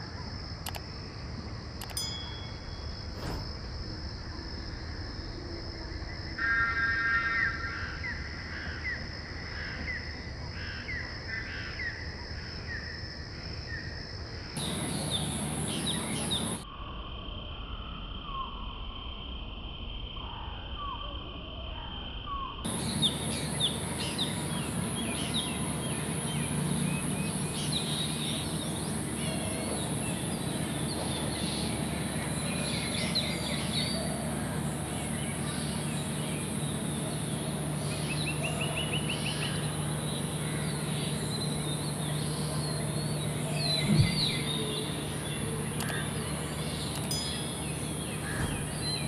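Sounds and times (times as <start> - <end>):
high-pitched insect drone: 1.7 - 8.3, 14.6 - 19.1, 22.1 - 49.0
birds chirping: 14.6 - 16.6, 22.7 - 49.0.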